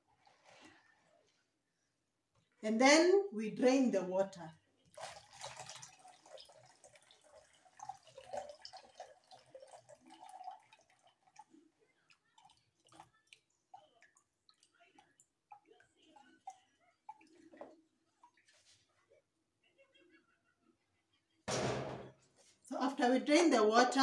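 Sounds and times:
water trickling and dripping: 0:04.8 - 0:19.2.

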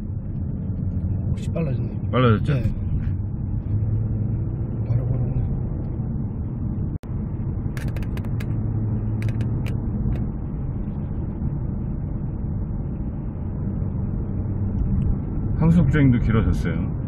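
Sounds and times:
car engine and tyre drone: 0:00.0 - 0:17.0.

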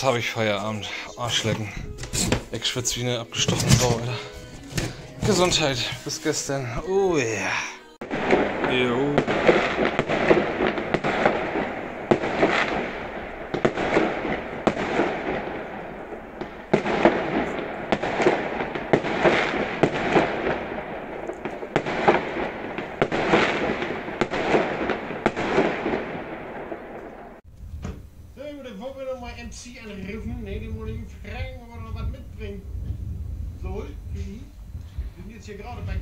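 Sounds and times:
fireworks bangs and crackles: 0:08.0 - 0:36.0.

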